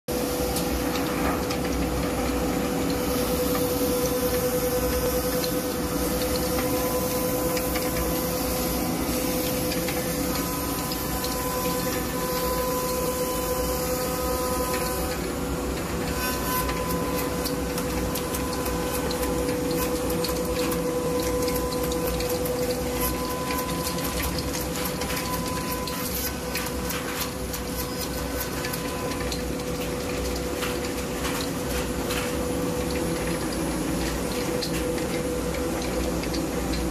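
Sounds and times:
router spindle whine: 3.8 - 17.7.

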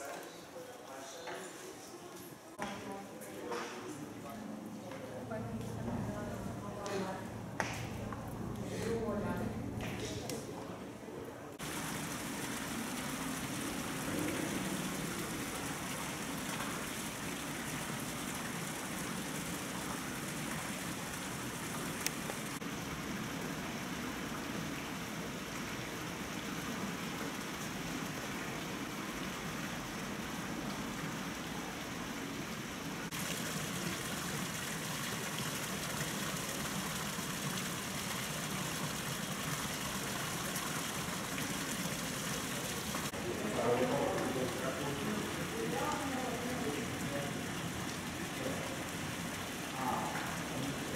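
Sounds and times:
fountain water splashing: 11.5 - 50.9.

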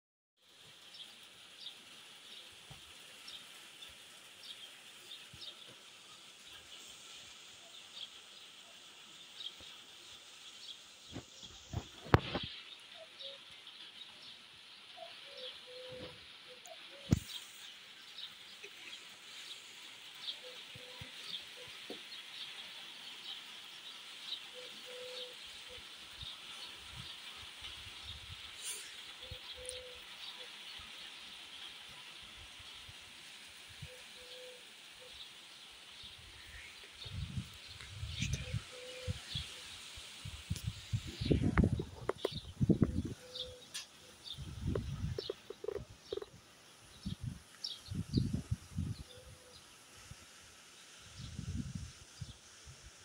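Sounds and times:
light rain hiss: 0.4 - 53.0
bird chirping: 10.5 - 19.0, 24.3 - 26.4, 28.6 - 30.5, 33.8 - 35.2, 36.0 - 39.7, 40.6 - 49.7
short low bird calls: 15.0 - 17.4, 24.5 - 25.4, 28.6 - 30.0, 36.4 - 39.7, 41.1 - 46.3.

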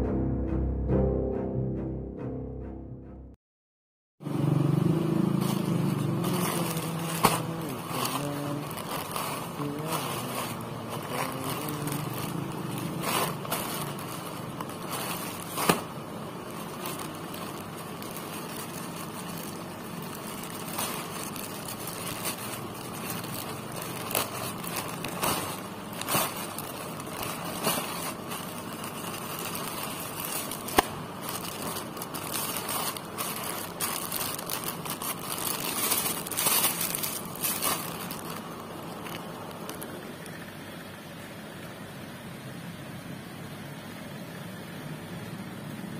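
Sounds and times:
plastic bag crinkling: 5.3 - 40.4.

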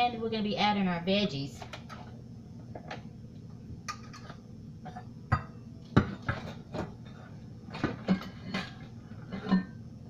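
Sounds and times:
cookware and utensils clinking: 3.9 - 7.0, 7.7 - 9.8.

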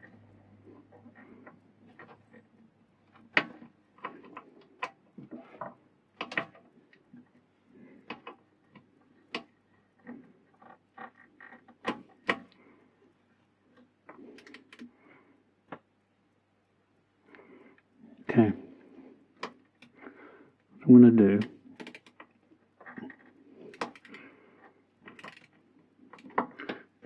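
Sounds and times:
spanner clicking on bolts: 21.8 - 22.2, 25.1 - 25.6.

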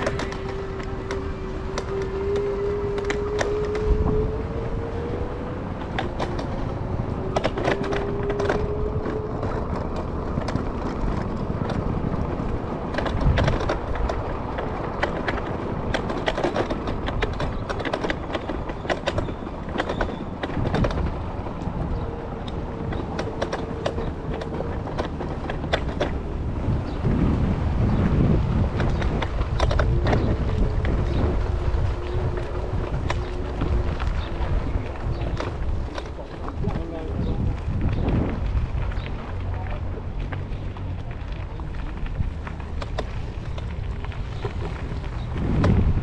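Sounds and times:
low rumble of wheels: 0.0 - 46.0
scooter frame rattling over bumps: 0.0 - 46.0.

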